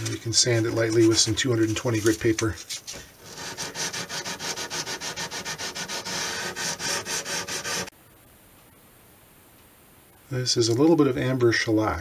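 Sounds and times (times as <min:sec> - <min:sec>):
sandpaper rubbing on wood: 0:00.0 - 0:07.9.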